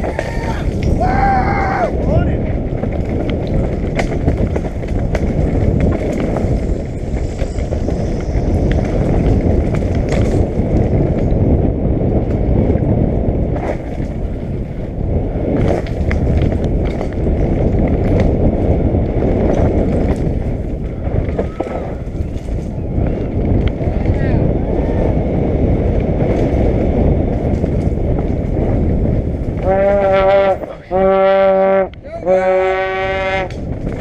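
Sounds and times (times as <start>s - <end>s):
wind rush on microphone: 0.0s - 34.0s.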